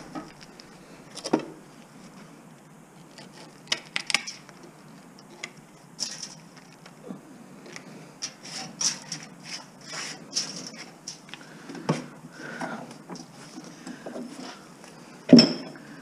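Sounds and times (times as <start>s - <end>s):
metal scraping and clicking: 8.2s - 11.4s.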